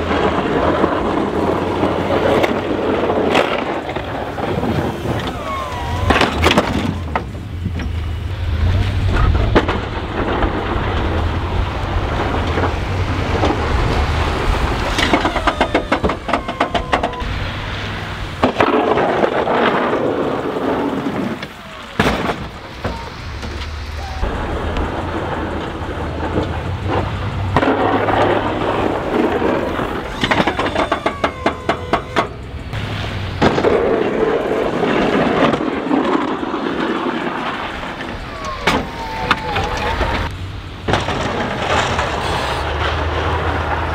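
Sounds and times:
plow blades scraping slush: 0:00.0 - 0:16.3
truck engine drone: 0:00.0 - 0:43.9.

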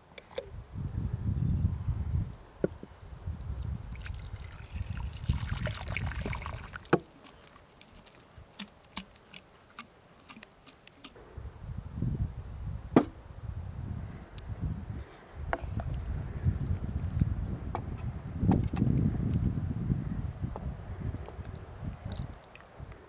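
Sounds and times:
liquid trickling and sloshing: 0:03.9 - 0:10.8, 0:22.0 - 0:22.8.

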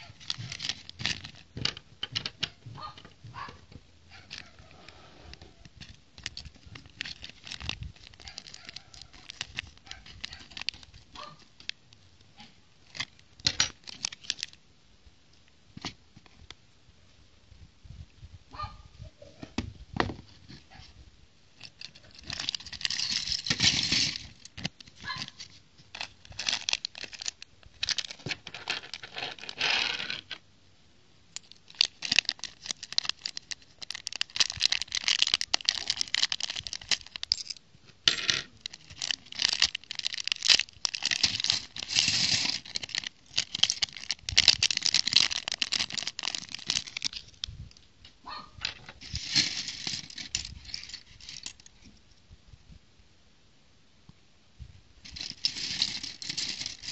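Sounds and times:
plastic bags crinkling and tearing: 0:00.0 - 0:01.8, 0:04.1 - 0:04.7, 0:05.5 - 0:11.8, 0:12.8 - 0:14.6, 0:21.6 - 0:29.6, 0:31.4 - 0:47.5, 0:48.7 - 0:51.8, 0:55.0 - 0:56.9
plastic bricks clattering on a plate: 0:21.6 - 0:25.4, 0:26.0 - 0:30.4, 0:31.4 - 0:47.2, 0:48.6 - 0:51.6, 0:55.1 - 0:56.9.

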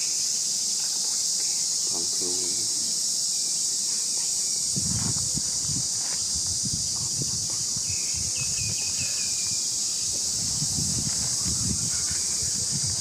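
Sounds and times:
high-pitched insect drone: 0:00.0 - 0:13.0.

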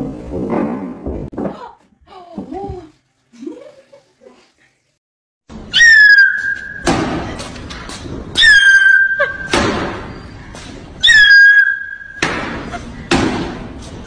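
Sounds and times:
sliding whistle tone: 0:05.8 - 0:06.9, 0:11.0 - 0:12.2.

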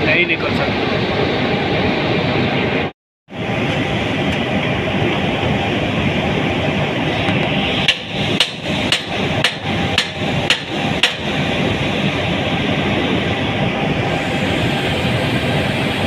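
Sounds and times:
machinery running: 0:00.0 - 0:16.0
hammer striking metal: 0:07.8 - 0:11.3.

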